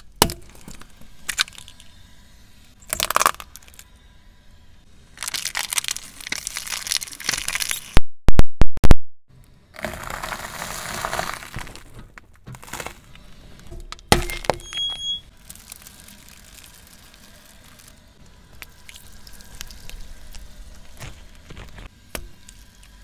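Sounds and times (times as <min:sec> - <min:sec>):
toasted bread crunching: 0:05.2 - 0:07.9, 0:09.8 - 0:11.9, 0:15.3 - 0:23.0
plastic tubs cracking under tyre: 0:09.8 - 0:14.6.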